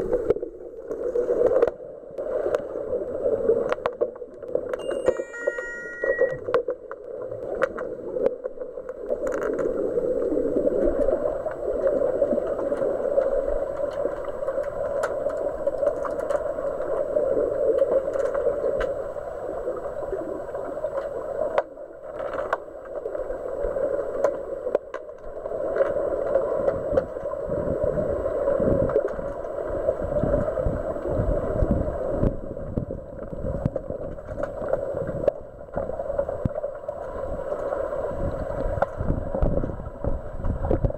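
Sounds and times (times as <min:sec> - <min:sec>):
underwater rushing water and bubbles: 0:00.0 - 0:40.9.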